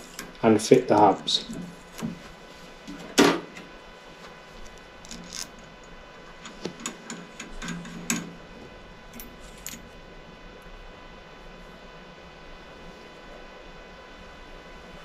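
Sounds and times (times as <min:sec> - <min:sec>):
metal spacers clicking: 0:05.0 - 0:05.6.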